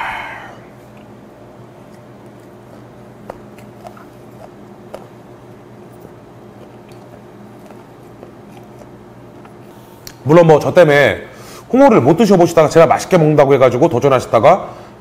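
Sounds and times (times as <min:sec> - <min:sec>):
steady low hum: 0:00.0 - 0:15.0
person chewing wetly: 0:01.8 - 0:09.7.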